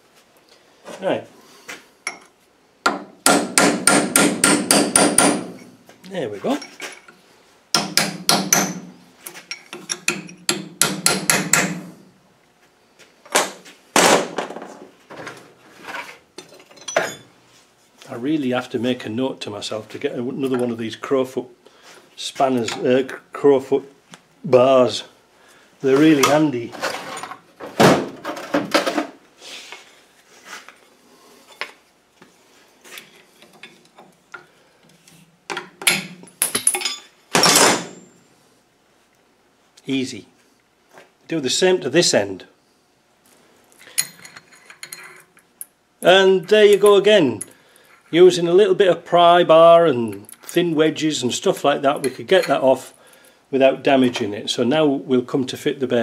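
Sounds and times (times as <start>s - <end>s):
hammer striking steel chisel: 2.9s - 5.6s, 7.8s - 8.9s, 9.9s - 11.8s
steel tools clinking and scraping: 9.4s - 10.4s, 16.4s - 17.3s, 35.9s - 37.6s, 43.8s - 45.5s, 52.0s - 52.7s.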